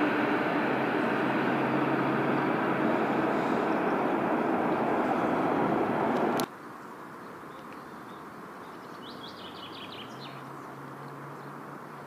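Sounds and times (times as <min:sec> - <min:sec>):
electric train approaching: 0:00.0 - 0:06.5
low steady hum: 0:00.0 - 0:06.5
bird chirps: 0:07.5 - 0:10.7.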